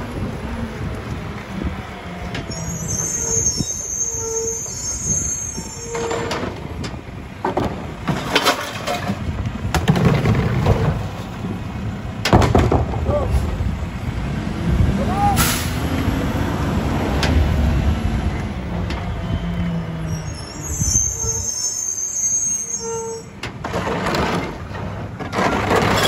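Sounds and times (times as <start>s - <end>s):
brakes squealing: 0.0s - 9.3s, 14.8s - 26.0s
garbage truck running: 0.0s - 21.5s, 23.2s - 26.0s
carts banging against hopper: 5.9s - 11.3s, 12.2s - 13.5s, 23.4s - 26.0s.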